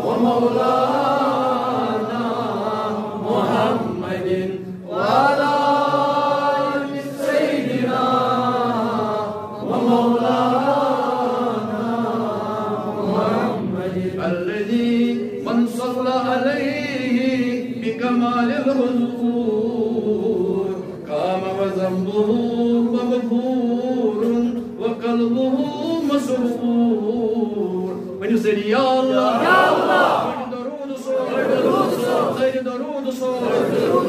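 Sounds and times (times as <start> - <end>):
man chanting: 13.4 - 29.4, 30.3 - 31.3, 32.3 - 34.0.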